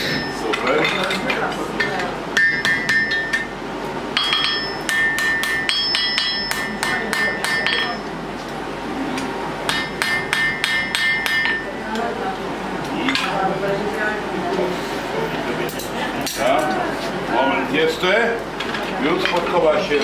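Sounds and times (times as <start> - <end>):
hammer striking horseshoe on anvil: 1.8 - 3.5, 4.2 - 8.1, 9.7 - 11.8.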